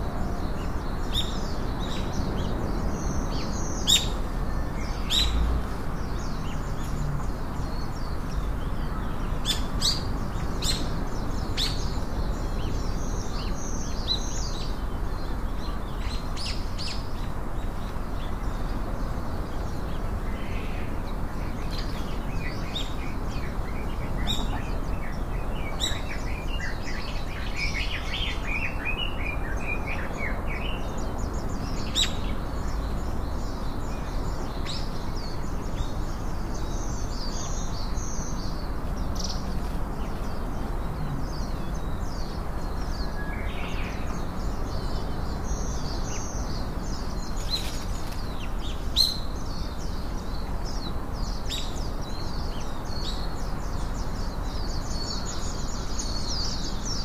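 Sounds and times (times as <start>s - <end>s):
small birds chirping: 0.0s - 57.0s
steady background hiss: 0.0s - 57.0s.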